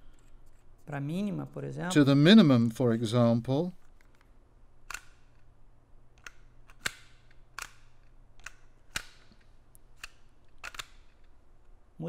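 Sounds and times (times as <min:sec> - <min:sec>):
holster lock clicks: 0:04.8 - 0:05.4, 0:06.2 - 0:11.4.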